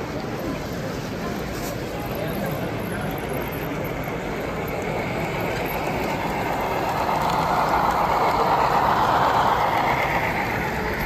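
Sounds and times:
model train running: 0:00.0 - 0:11.0.

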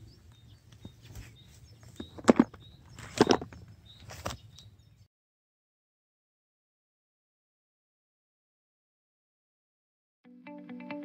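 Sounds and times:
birds chirping faintly: 0:00.0 - 0:05.1
stones knocking and scraping: 0:01.8 - 0:04.4.

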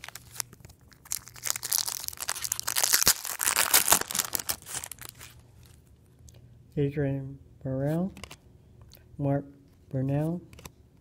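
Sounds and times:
foil wrapper crinkling and tearing: 0:00.0 - 0:05.8.

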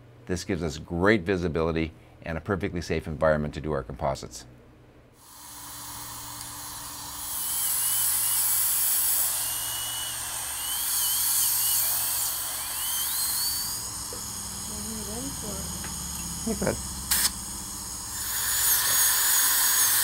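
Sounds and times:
dental drill whining: 0:05.2 - 0:20.0.

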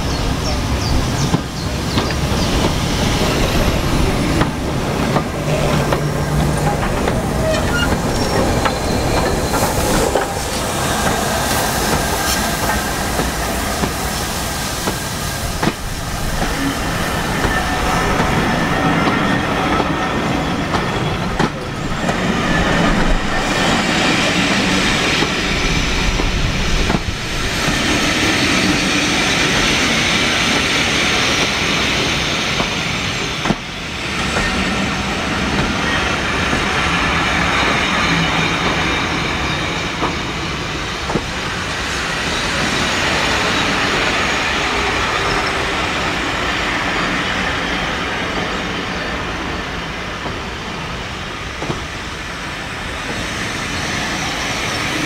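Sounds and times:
train wheels rolling on rails: 0:00.0 - 0:55.0
high wheel squeals: 0:06.5 - 0:10.9.

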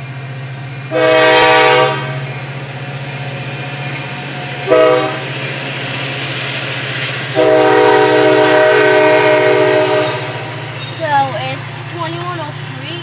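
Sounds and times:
train rumbling past: 0:00.0 - 0:13.0
locomotive air horn blasts: 0:00.9 - 0:02.3, 0:04.6 - 0:05.3, 0:07.3 - 0:10.6.

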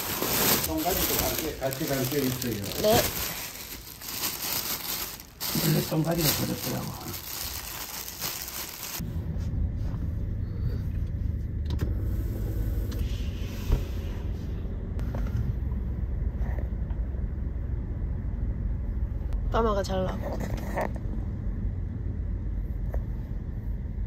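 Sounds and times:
plastic bag rustling: 0:00.0 - 0:09.0.

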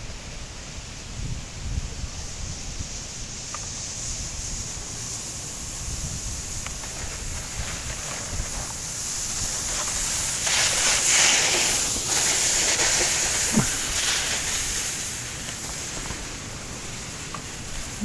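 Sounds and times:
plastic sled sliding over snow: 0:03.8 - 0:18.0.

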